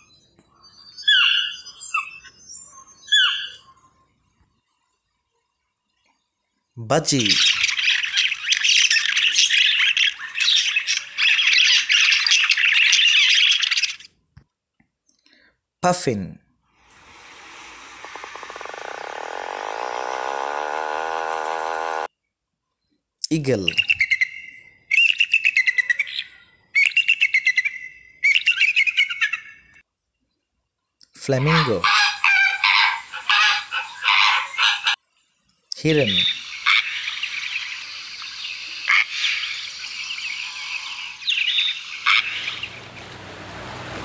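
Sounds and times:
eagle calling: 0:31.4 - 0:35.0, 0:35.8 - 0:43.6
budgerigar chattering: 0:36.0 - 0:42.8.

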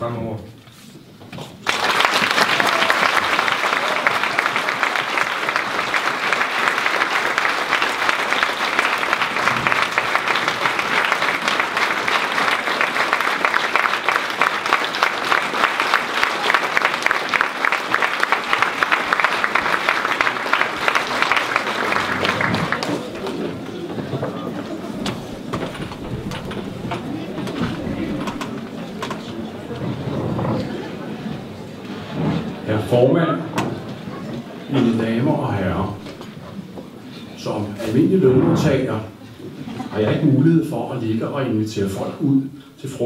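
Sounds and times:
audience applauding: 0:01.6 - 0:32.6.

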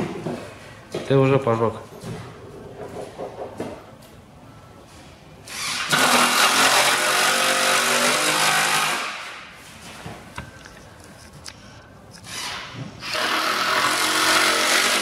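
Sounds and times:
electric drill driving screw: 0:05.5 - 0:09.3, 0:12.2 - 0:15.0.

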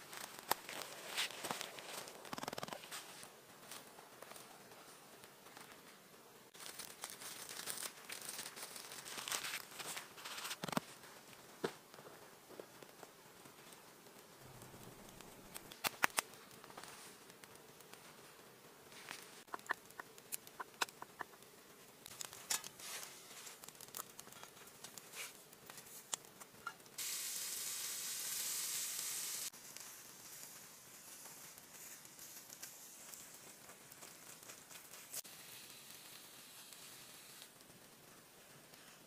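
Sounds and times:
food sizzling on grill: 0:26.6 - 0:33.4, 0:35.1 - 0:37.6.

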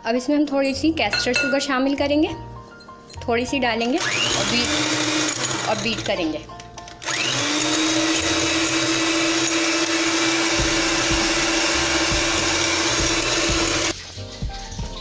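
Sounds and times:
electric hand mixer whine: 0:04.0 - 0:06.1, 0:07.0 - 0:13.9
beaters whirring through batter: 0:04.0 - 0:06.3, 0:07.0 - 0:13.9.

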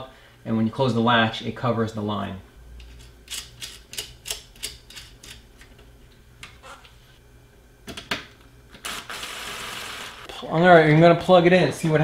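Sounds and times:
cordless drill running: 0:08.8 - 0:10.3.

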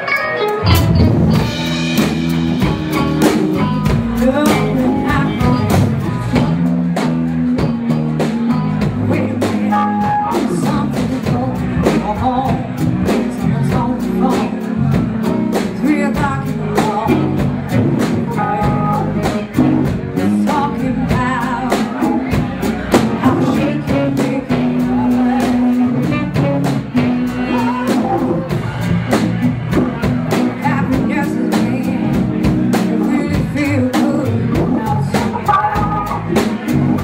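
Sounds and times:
person singing: 0:00.0 - 0:28.8, 0:29.7 - 0:37.0
live rock band playing: 0:00.0 - 0:37.0
drum beat: 0:00.7 - 0:13.9, 0:21.2 - 0:33.6.

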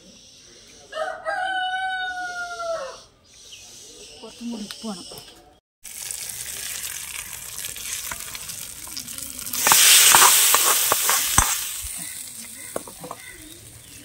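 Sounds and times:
oil sizzling and crackling in pan: 0:05.8 - 0:14.0
loud hiss with sharp clicks: 0:09.6 - 0:13.6.

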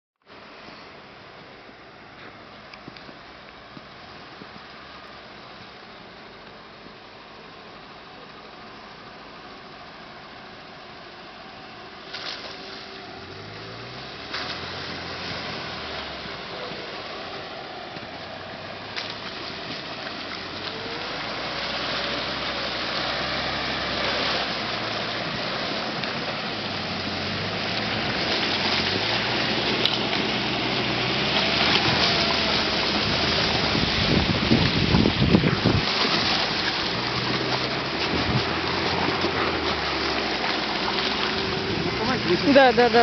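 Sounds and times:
engine at low revs: 0:02.9 - 0:43.0
slush churning under tyres: 0:11.5 - 0:43.0.

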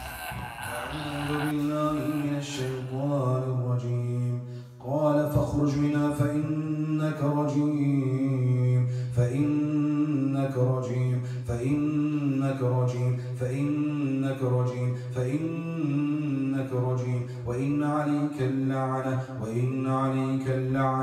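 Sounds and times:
low voice droning chant: 0:00.0 - 0:05.2.

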